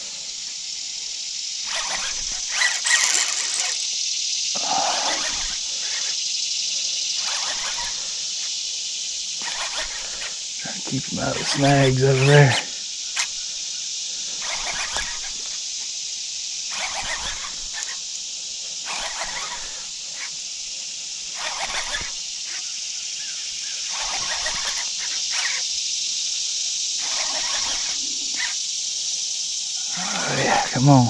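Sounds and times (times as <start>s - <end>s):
high-pitched insect chorus: 0.0s - 31.0s
short noisy bursts: 1.6s - 4.0s, 4.6s - 13.3s, 18.7s - 20.5s, 23.9s - 25.7s, 27.0s - 28.6s, 29.8s - 31.0s.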